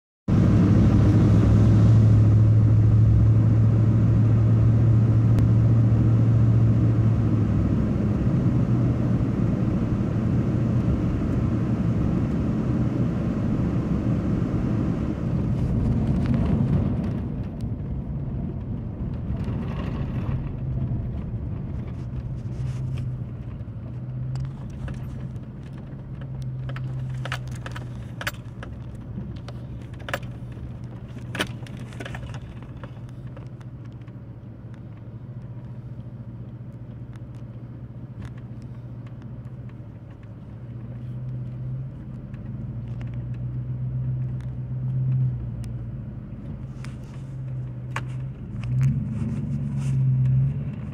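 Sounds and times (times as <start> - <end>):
tyres on gravel road: 0.3 - 50.9
vehicle engine drone: 0.3 - 50.9.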